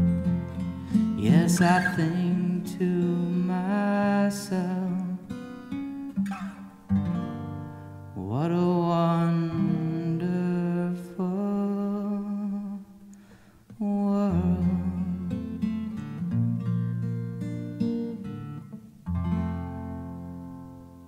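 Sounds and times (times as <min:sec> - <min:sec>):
acoustic guitar chords: 0:00.0 - 0:21.0
man singing without words: 0:00.8 - 0:06.7, 0:08.1 - 0:13.1, 0:13.7 - 0:16.1.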